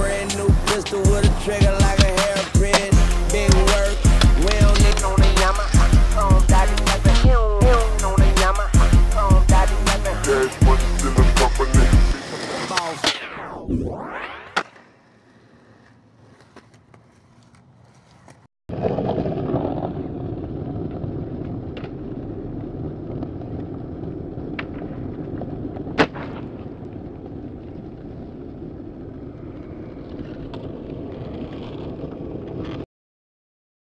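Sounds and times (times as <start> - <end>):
skateboard clacks: 0.0 - 5.7
skateboard wheels rolling on concrete: 0.0 - 32.9.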